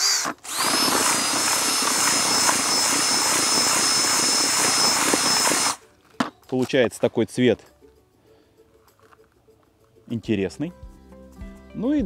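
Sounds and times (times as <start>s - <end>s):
drill motor whine: 0.0s - 5.8s.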